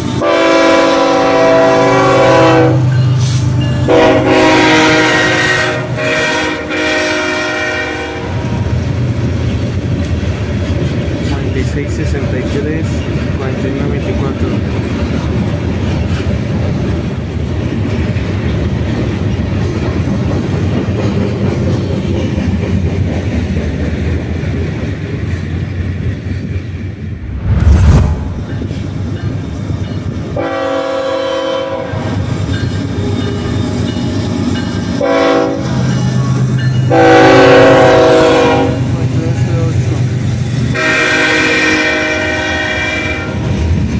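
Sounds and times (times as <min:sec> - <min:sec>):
diesel locomotive rumbling: 0:00.0 - 0:43.9
locomotive air horn blasts: 0:00.2 - 0:02.9, 0:03.9 - 0:08.5, 0:30.4 - 0:32.1, 0:35.0 - 0:35.8, 0:36.9 - 0:38.9, 0:40.7 - 0:43.4
loud low thump: 0:27.2 - 0:28.9.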